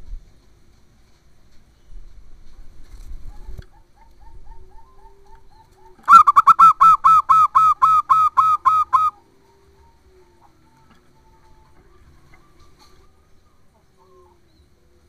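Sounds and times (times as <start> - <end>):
dove staccato cooing: 3.3 - 14.6.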